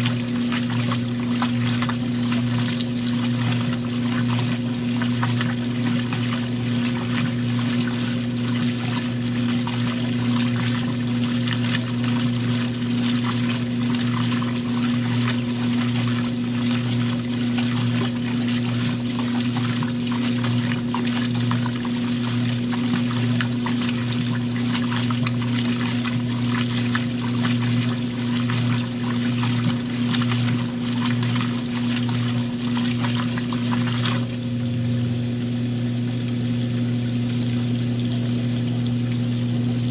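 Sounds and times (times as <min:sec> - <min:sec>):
water splashing in washing machine: 0:00.0 - 0:39.9.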